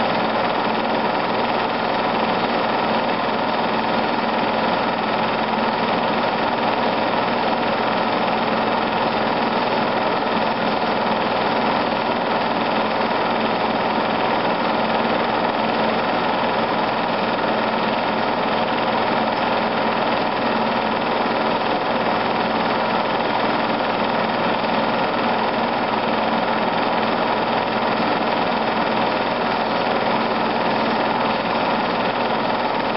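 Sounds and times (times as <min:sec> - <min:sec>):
film projector whirring: 0:00.0 - 0:32.9.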